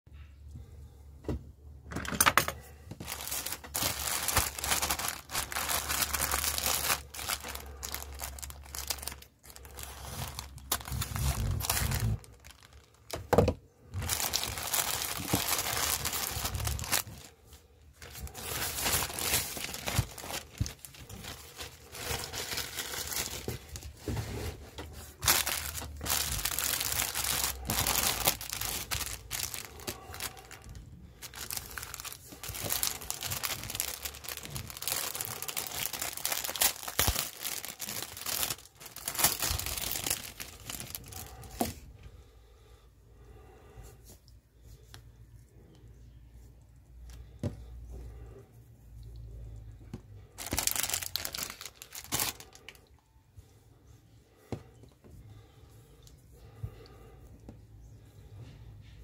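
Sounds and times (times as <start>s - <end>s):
cellophane bags crinkling: 2.2s - 41.8s, 50.2s - 52.9s
plastic bag tearing open: 3.0s - 17.3s, 18.0s - 24.0s, 25.1s - 41.7s, 50.4s - 52.8s.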